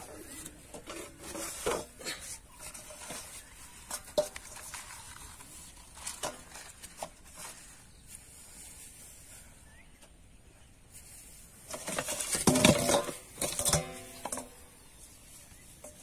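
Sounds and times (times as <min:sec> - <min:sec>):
hands handling an eel: 0:00.0 - 0:10.2.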